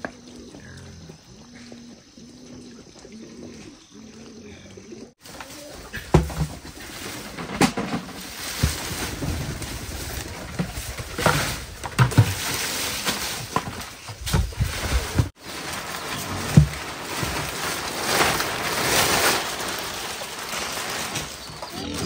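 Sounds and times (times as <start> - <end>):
dry palm leaves rustling: 5.2 - 22.0
knocks and thumps: 5.9 - 15.3.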